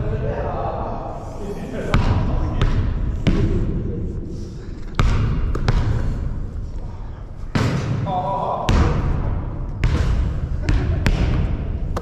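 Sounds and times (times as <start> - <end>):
basketball bouncing on hard floor: 5.0 - 6.1, 9.8 - 12.0.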